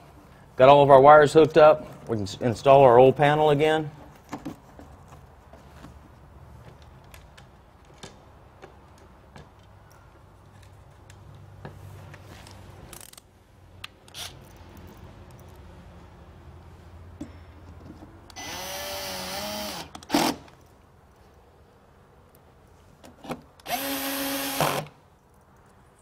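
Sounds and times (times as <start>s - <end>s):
rustles: 9.8s - 13.4s.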